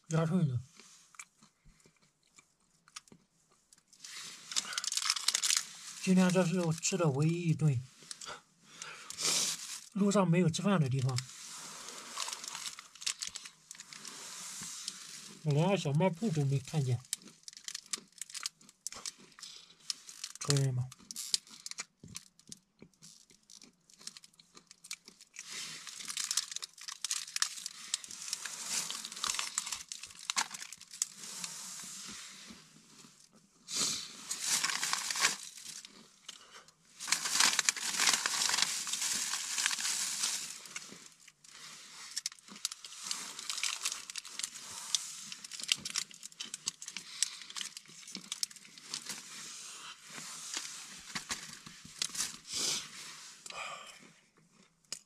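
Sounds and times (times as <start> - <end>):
plastic bag rustling: 4.1 - 7.4, 10.9 - 15.5, 25.5 - 32.1, 34.1 - 35.9, 37.0 - 53.2.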